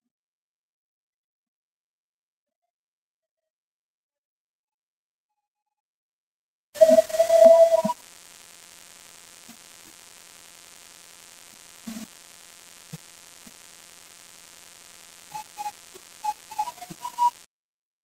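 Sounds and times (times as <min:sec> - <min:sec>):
faint whistle-like notes: 0:06.8 - 0:08.0, 0:14.5 - 0:17.5
background hiss and hum: 0:06.8 - 0:17.5.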